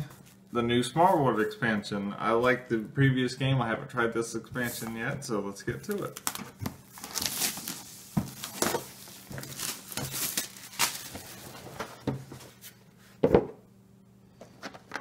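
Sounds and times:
plastic shrink wrap crinkling: 5.8s - 11.9s.

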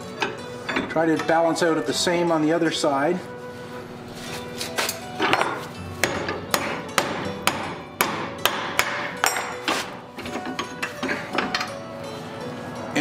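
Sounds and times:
hammer striking hot steel: 5.3s - 9.9s.

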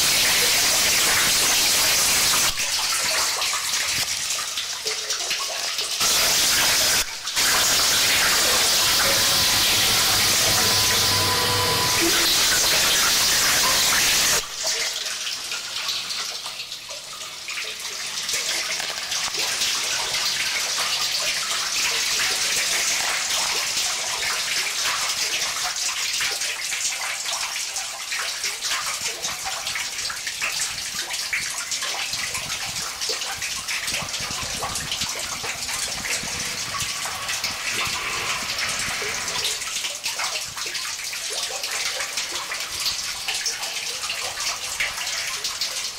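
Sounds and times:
crackling hissing texture with clicks: 0.0s - 4.4s, 6.0s - 14.8s, 18.4s - 20.7s, 32.2s - 41.3s
loud wall of hiss: 6.0s - 14.4s, 35.8s - 39.9s.

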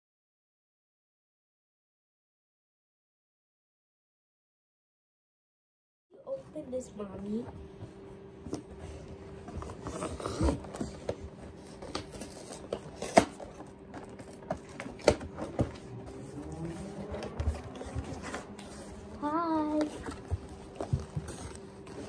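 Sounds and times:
cardboard rustling: 8.6s - 22.0s.

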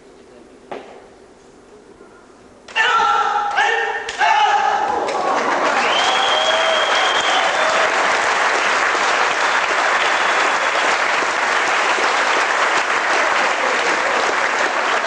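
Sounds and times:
audience applauding: 4.9s - 15.0s.

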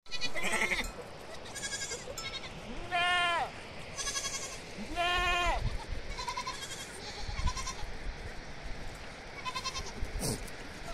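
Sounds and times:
goats bleating: 0.1s - 7.9s, 9.4s - 10.0s.

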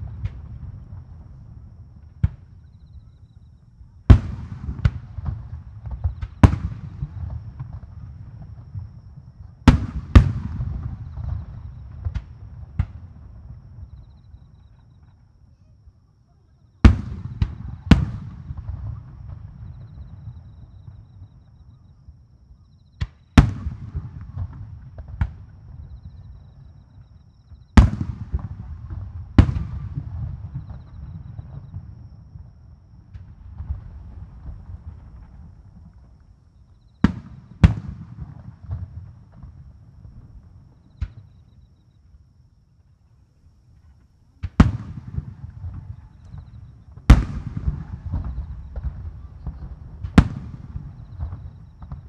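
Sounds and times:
firework shells booming: 37.0s - 39.6s, 44.4s - 52.0s.

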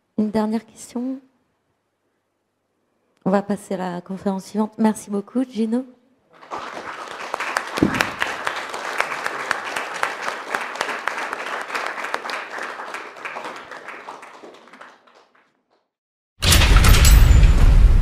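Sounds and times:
audience applauding: 6.3s - 15.8s.

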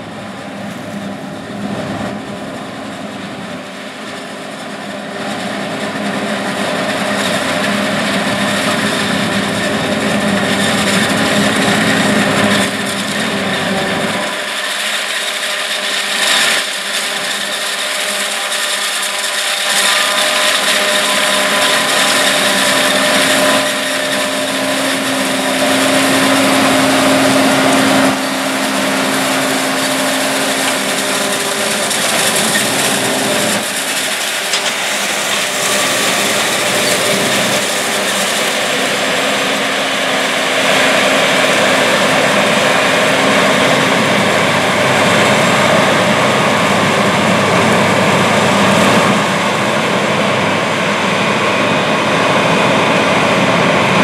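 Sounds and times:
forage harvester engine droning: 0.0s - 54.0s
tractor engine: 0.0s - 54.0s.

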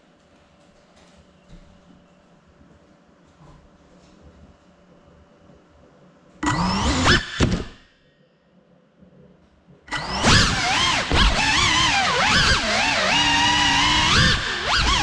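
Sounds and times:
drone motors whining: 6.4s - 7.8s, 9.9s - 15.0s.

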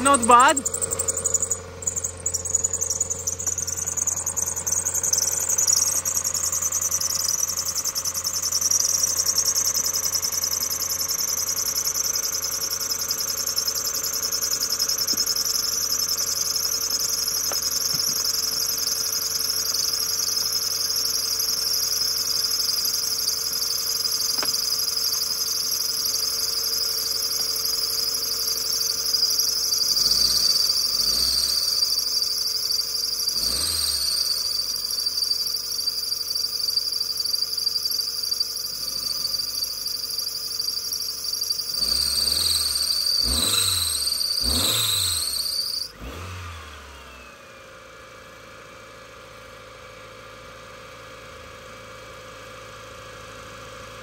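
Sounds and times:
car engine revving: 0.0s - 18.8s, 29.8s - 32.1s, 33.2s - 34.8s, 41.6s - 47.0s
high-pitched whine: 0.0s - 46.0s
car engine idling: 0.0s - 47.0s.

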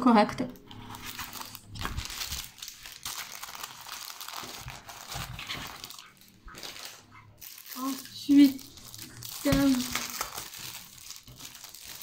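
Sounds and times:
plastic film crinkling: 0.6s - 12.0s.

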